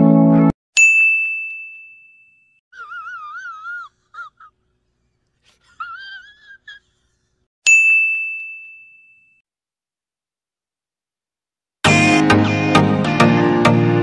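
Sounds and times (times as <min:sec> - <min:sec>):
bell-like ding: 0:00.8 - 0:02.6, 0:07.7 - 0:09.4.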